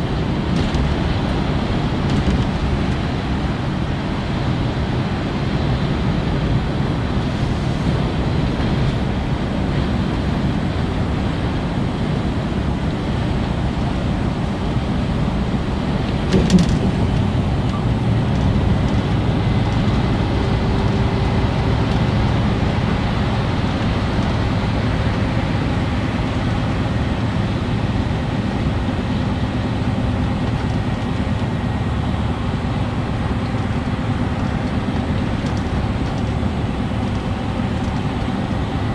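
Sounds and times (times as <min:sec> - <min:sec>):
truck engine hum: 0:00.0 - 0:38.9
tyre and road rumble: 0:00.0 - 0:38.9.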